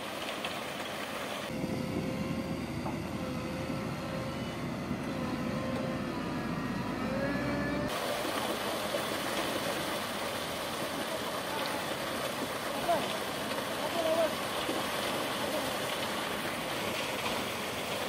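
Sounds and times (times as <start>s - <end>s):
road roller engine rumble: 0.2s - 18.0s
thin wavering whine: 1.5s - 8.4s
concrete mixer truck hissy noise: 5.2s - 18.0s.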